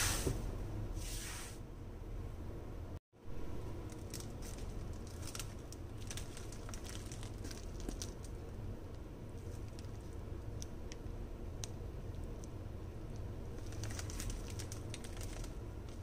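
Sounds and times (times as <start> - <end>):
low steady hum: 0.0 - 16.0
plastic mailer crinkling: 3.8 - 8.4, 13.6 - 16.0.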